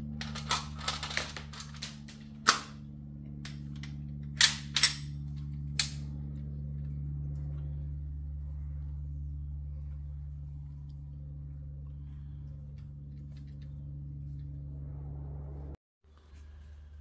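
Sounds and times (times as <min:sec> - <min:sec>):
low hum: 0:00.0 - 0:17.0
magazine clicking into air rifle: 0:03.5 - 0:05.1, 0:05.7 - 0:06.1.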